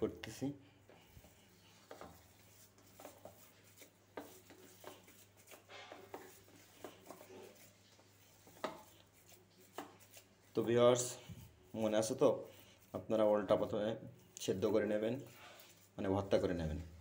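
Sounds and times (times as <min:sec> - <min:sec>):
hand squishing mashed food: 0:00.8 - 0:16.5.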